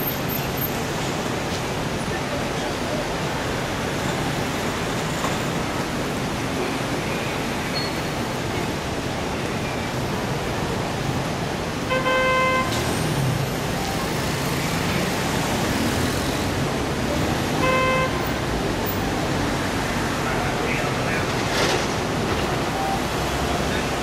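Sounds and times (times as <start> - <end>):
dense street traffic: 0.0 - 24.0
car horn toots: 11.9 - 12.8, 17.6 - 18.4.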